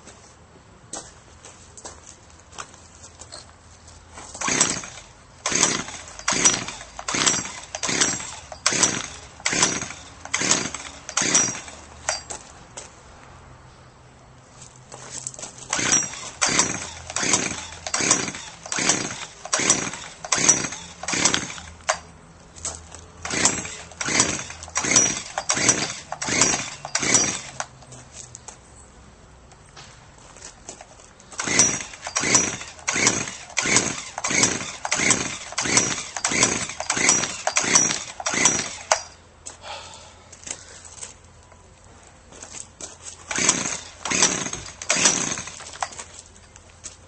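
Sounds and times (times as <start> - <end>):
small engine surging unevenly: 31.4 - 39.1, 43.3 - 45.6.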